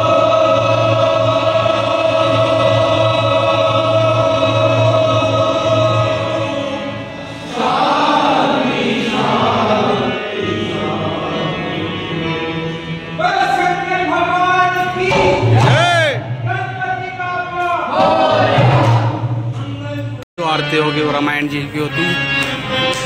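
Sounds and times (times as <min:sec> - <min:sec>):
group singing a devotional hymn: 0:00.0 - 0:13.9, 0:17.8 - 0:19.3.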